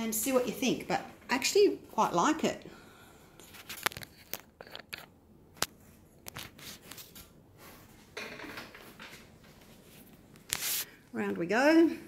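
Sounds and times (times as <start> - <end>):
short rustle: 8.8 - 11.0.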